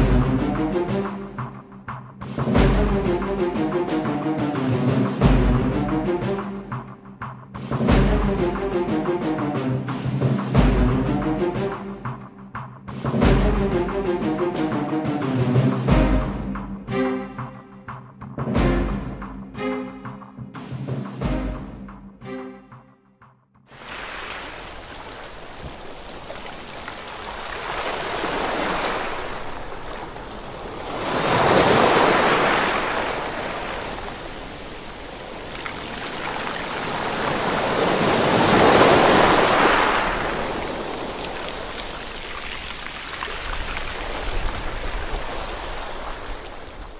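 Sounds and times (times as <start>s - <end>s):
ocean waves surging: 23.7s - 46.9s.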